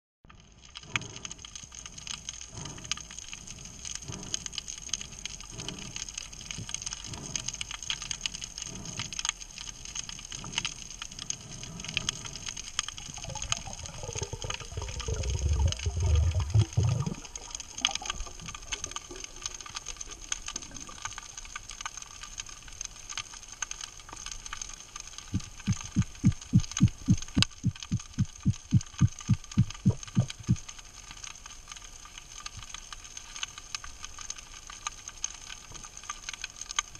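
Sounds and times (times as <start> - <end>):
fine underwater crackle: 0.2 - 36.9
low rumble: 11.4 - 20.0, 25.3 - 30.6
slow low pulses: 13.0 - 18.7, 25.3 - 30.6
low thumps: 25.4 - 30.6.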